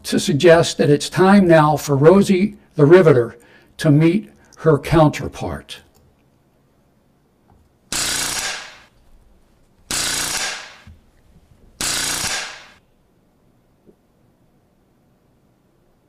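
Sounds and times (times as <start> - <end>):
pneumatic rivet gun hammering: 7.9 - 9.0, 9.9 - 11.0, 11.8 - 12.8.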